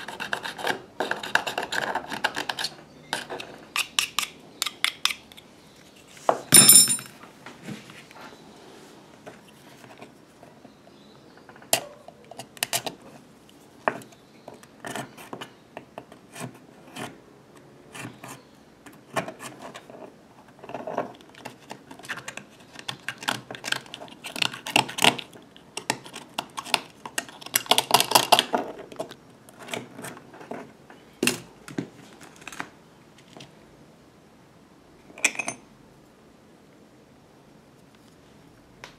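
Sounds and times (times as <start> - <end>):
tools clinking and scraping: 6.3 - 7.2, 35.2 - 35.6.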